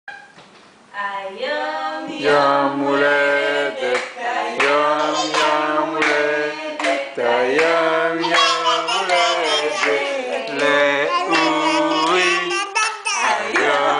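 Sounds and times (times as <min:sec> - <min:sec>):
people singing together: 0:01.0 - 0:13.9.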